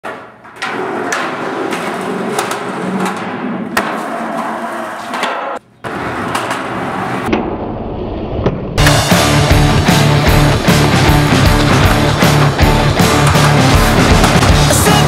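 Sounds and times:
skateboard wheels rolling on concrete: 0:00.0 - 0:15.0
skateboard clacking on ground: 0:11.4 - 0:14.6.

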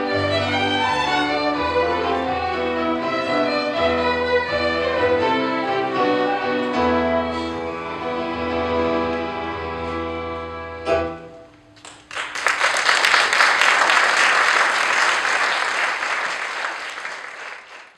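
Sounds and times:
fiddle-led band playing: 0:00.0 - 0:10.9
audience applause: 0:11.8 - 0:17.9.

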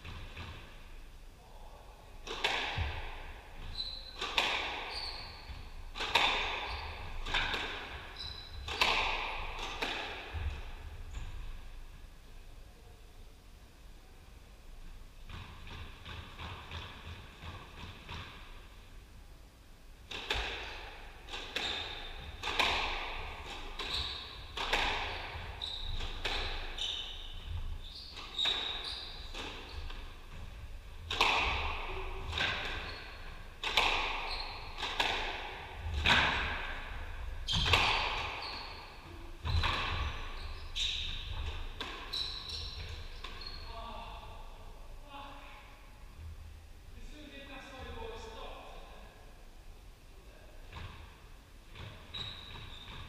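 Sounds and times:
squash ball hits: 0:02.2 - 0:03.3, 0:04.1 - 0:04.9, 0:05.5 - 0:10.6, 0:20.1 - 0:38.5, 0:39.4 - 0:40.1.

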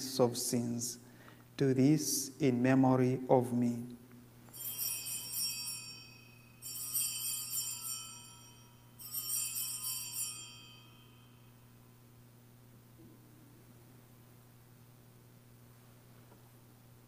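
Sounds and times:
small bells jingling: 0:04.5 - 0:11.5.

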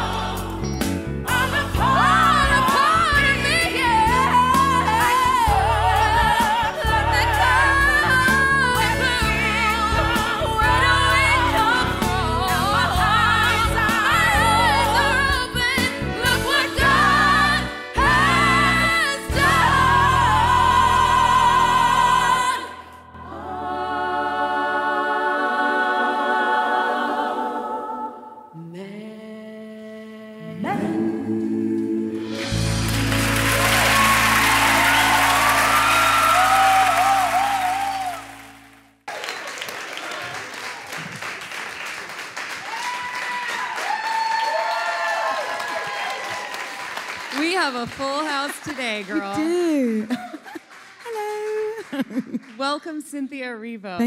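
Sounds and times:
band accompaniment: 0:00.0 - 0:19.9, 0:32.2 - 0:38.4
person singing with vibrato: 0:00.0 - 0:32.7.

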